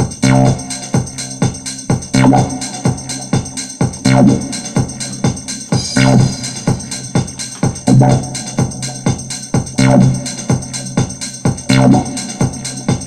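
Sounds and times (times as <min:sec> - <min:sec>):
drum-machine beat: 0:00.0 - 0:13.0
low synth chord: 0:05.7 - 0:08.5.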